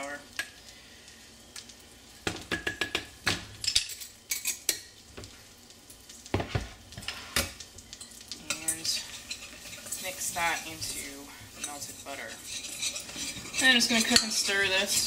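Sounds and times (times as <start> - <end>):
butter and flour sizzling: 0.0 - 15.0
metal whisk clinking on pan: 8.0 - 15.0.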